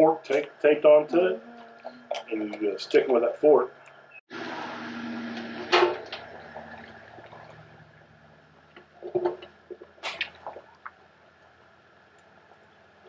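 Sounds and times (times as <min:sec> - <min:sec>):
water splashing and dripping: 0:04.9 - 0:13.0.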